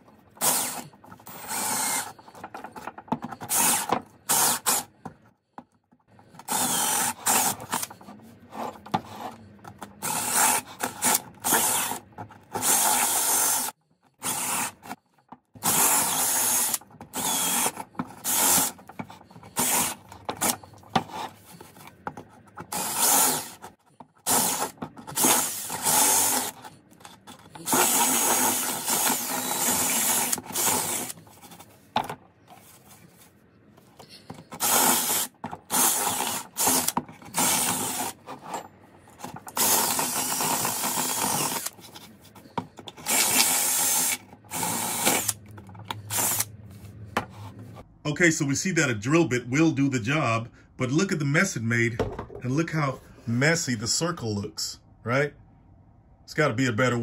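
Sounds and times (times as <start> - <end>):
cordless drill boring wood: 0.4 - 2.6, 3.4 - 4.9, 6.4 - 8.0, 10.0 - 15.0, 15.6 - 20.6, 22.7 - 26.7, 27.3 - 31.2, 34.5 - 38.2, 39.4 - 41.8, 43.0 - 45.4, 46.0 - 46.5.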